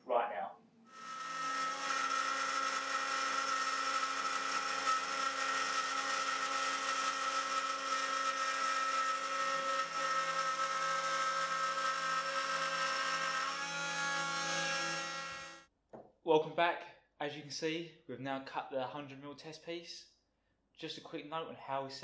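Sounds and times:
router spindle high whine: 1.0s - 15.6s.

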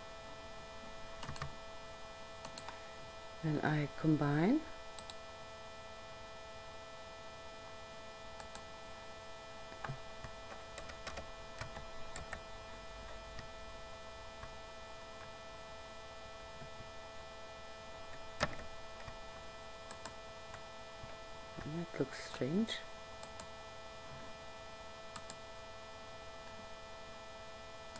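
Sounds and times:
electrical hum: 0.0s - 27.9s
computer mouse clicks: 1.2s - 1.5s, 2.4s - 2.8s, 5.0s - 5.2s, 8.4s - 8.7s, 19.8s - 20.2s, 23.2s - 23.5s, 25.1s - 25.4s.

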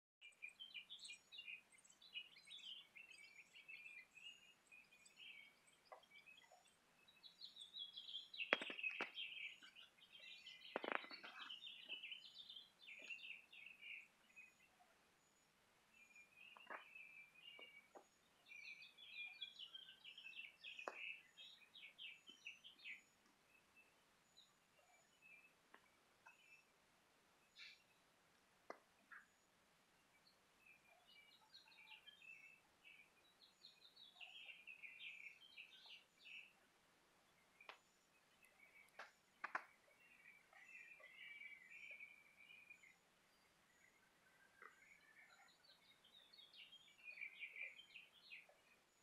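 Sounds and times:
small birds chirping: 0.2s - 49.0s
sharp clicks: 8.5s - 9.2s.

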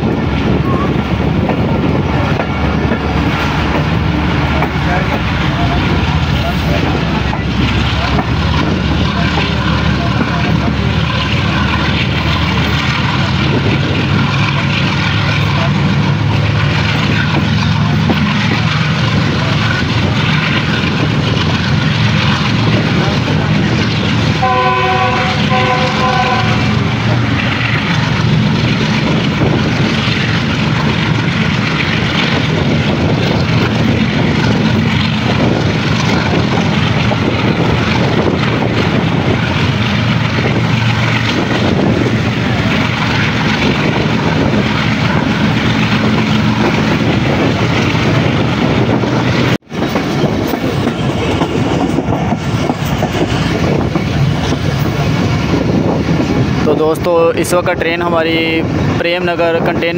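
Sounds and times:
train rumbling on rails: 0.0s - 59.9s
train horn blasts: 24.4s - 26.9s.

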